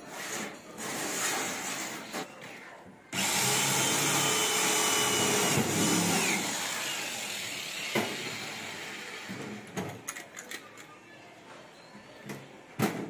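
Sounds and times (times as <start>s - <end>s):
electric drill boring into metal: 3.2s - 9.3s.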